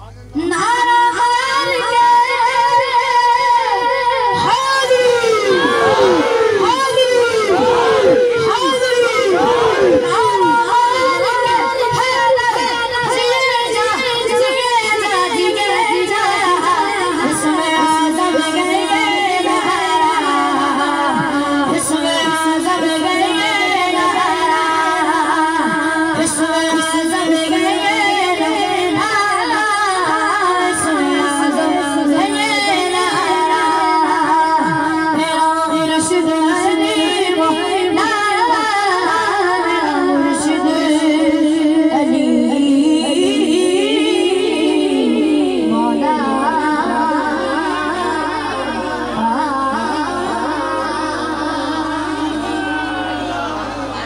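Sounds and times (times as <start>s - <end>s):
boy singing into microphone: 0.0s - 54.0s.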